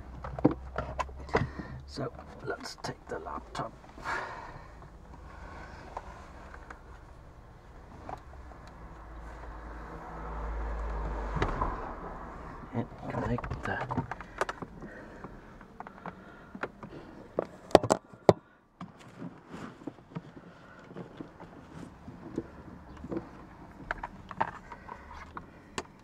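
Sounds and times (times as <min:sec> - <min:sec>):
handling clicks and knocks: 0:00.0 - 0:04.1, 0:12.8 - 0:26.0.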